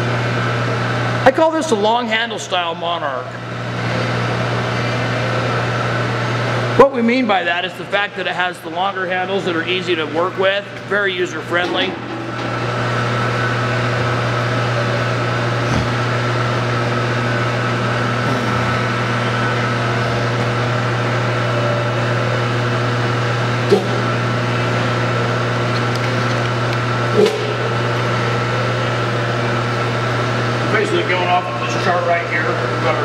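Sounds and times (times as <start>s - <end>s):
machinery hum with high whine: 0.0s - 33.0s.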